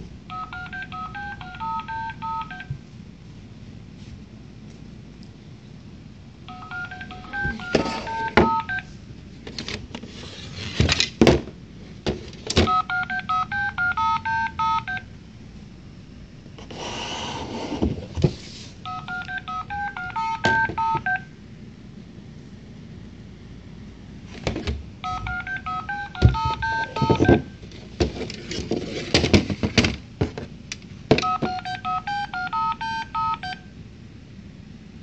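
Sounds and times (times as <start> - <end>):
electronic beeping tune: 6.5 - 8.8, 18.9 - 21.2, 25.0 - 27.4.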